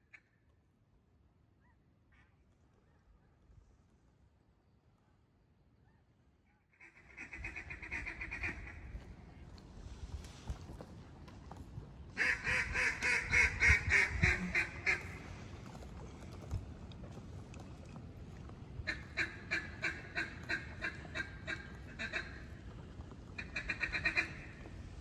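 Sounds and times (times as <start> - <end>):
duck call quacking: 12.2 - 15.2, 23.4 - 24.5.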